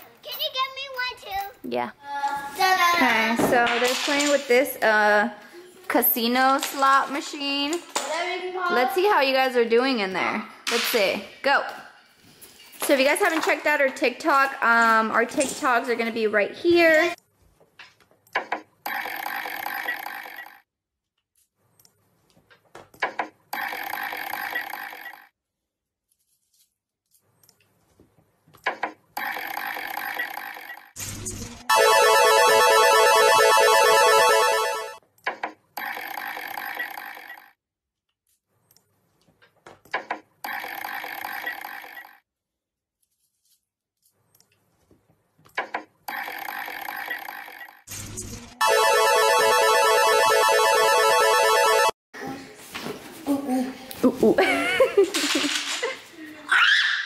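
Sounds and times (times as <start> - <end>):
buzzer tone: 31.6 - 35.0, 48.0 - 52.0.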